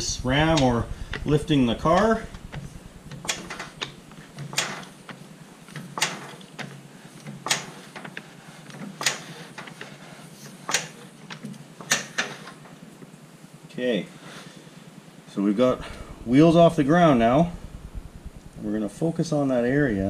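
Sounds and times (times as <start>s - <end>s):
floor jack clicking: 1.9s - 5.0s.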